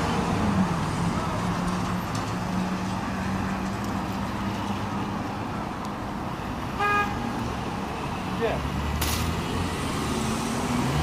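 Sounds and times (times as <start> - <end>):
city traffic noise: 0.0 - 11.0
car horn toot: 6.8 - 7.2.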